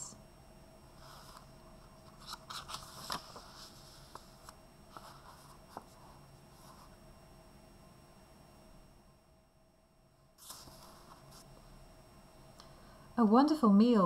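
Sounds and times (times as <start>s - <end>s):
book page turning: 1.0s - 7.0s, 10.4s - 11.5s.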